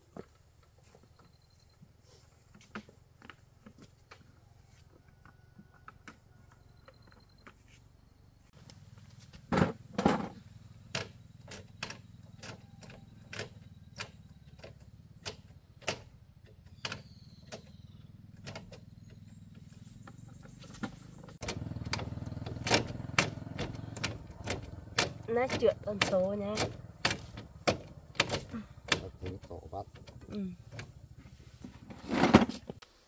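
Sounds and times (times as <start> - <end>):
tool clicks and knocks: 21.4 - 29.4.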